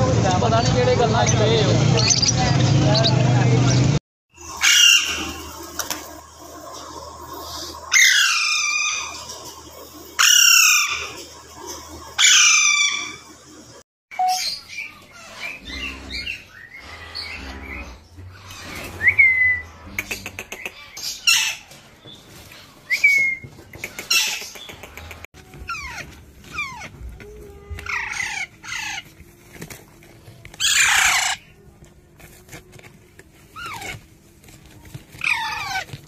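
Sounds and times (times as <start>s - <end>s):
birds squawking and chirping: 0.5s - 29.3s, 30.6s - 31.6s, 33.5s - 34.1s, 35.1s - 36.0s
parakeets screeching: 4.4s - 5.7s, 7.5s - 9.4s, 10.1s - 21.7s, 25.7s - 27.0s, 27.8s - 29.1s, 30.6s - 31.5s, 33.5s - 34.0s, 35.2s - 36.0s.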